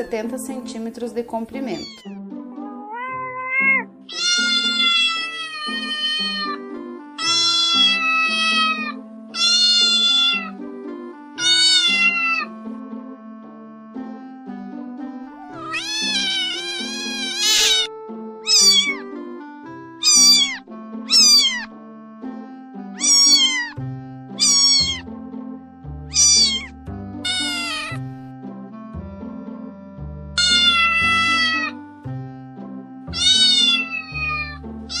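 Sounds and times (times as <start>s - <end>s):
background music: 0.0s - 35.0s
cat meowing: 1.6s - 6.6s, 7.2s - 10.6s, 11.4s - 12.5s, 15.4s - 19.1s, 20.0s - 21.7s, 23.0s - 23.8s, 24.4s - 25.0s, 26.1s - 28.0s, 30.4s - 31.8s, 33.1s - 35.0s.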